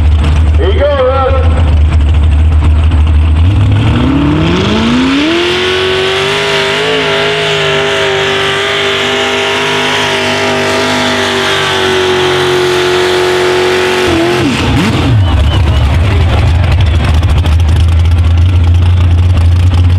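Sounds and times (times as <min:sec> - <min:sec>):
truck engine revving: 0:00.0 - 0:19.9.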